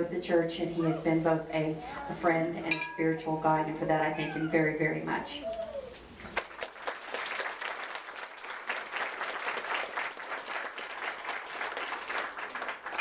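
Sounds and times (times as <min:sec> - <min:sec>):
crowd applauding: 0:06.3 - 0:13.0.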